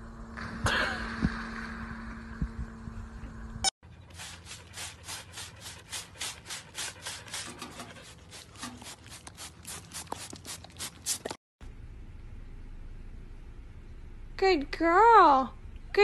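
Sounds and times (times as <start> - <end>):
spray bottle squirting: 4.2 - 11.4.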